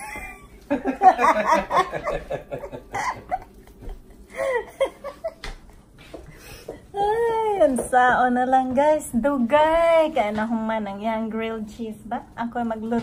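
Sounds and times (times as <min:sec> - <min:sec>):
woman laughing heartily: 0:00.0 - 0:05.6.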